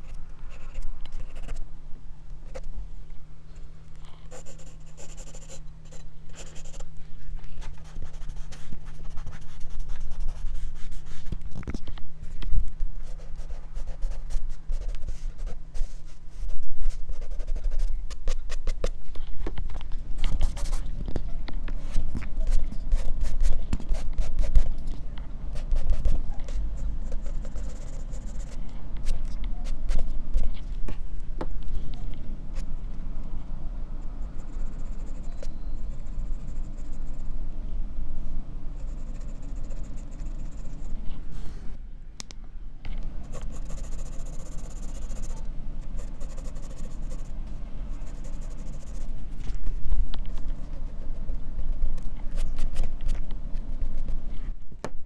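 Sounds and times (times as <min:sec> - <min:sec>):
pencil scratching on paper: 0:04.3 - 0:06.8, 0:07.6 - 0:11.3, 0:13.0 - 0:18.9, 0:25.6 - 0:28.6, 0:38.8 - 0:41.0, 0:43.2 - 0:47.3, 0:48.0 - 0:49.1.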